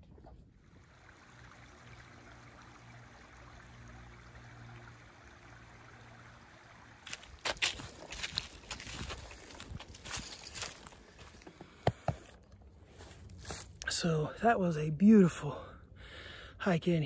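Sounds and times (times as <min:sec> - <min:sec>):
footsteps crunching on dry leaves: 0:07.0 - 0:11.4, 0:12.9 - 0:13.8.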